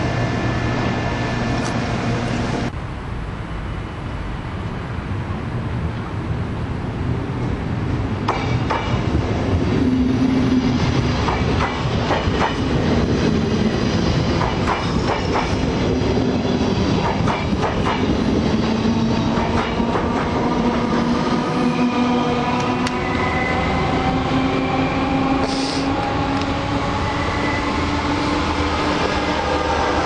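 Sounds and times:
train wheels clicking on rail joints: 8.3s - 9.1s, 11.2s - 12.8s, 14.3s - 15.7s, 16.9s - 20.4s.

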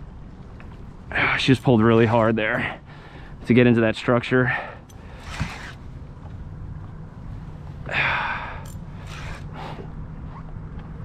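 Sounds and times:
heavy hissing breaths: 2.6s - 3.4s, 7.8s - 9.9s.

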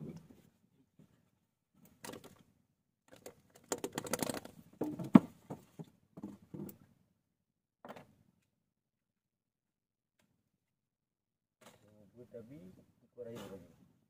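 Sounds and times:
fishing gear clicks and rustles: 1.8s - 2.5s, 3.1s - 5.1s.

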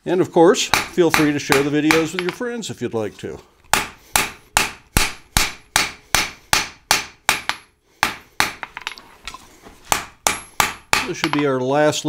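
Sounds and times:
hammer striking steel on anvil: 0.7s - 2.4s, 3.7s - 8.9s, 9.9s - 11.5s.

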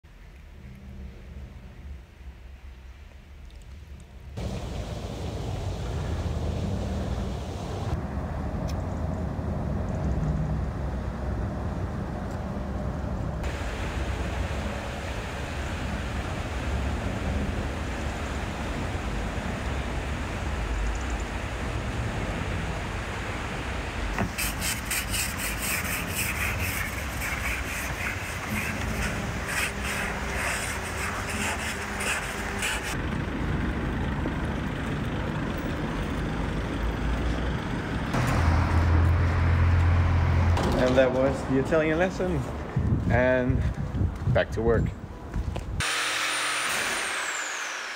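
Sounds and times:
outdoor rumble: 3.7s - 24.4s
ice scraper scraping frost: 24.3s - 33.0s.

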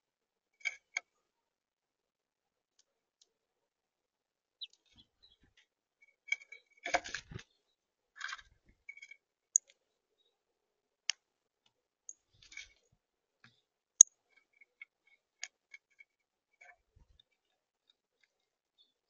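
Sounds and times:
birds pecking seed on plastic: 4.6s - 9.8s, 11.6s - 19.0s.

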